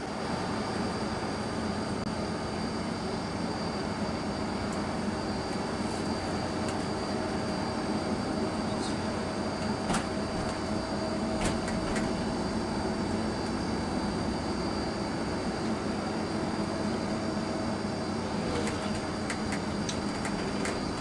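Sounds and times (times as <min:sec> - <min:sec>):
faint steady whine: 0:00.0 - 0:21.0
vehicle engine and road noise: 0:18.1 - 0:21.0
light clicks and rattles: 0:18.6 - 0:21.0.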